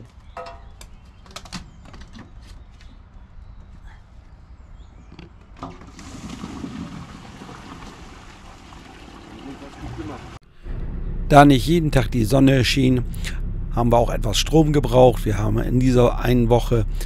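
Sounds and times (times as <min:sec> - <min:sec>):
liquid rushing through hose: 0:05.9 - 0:10.4.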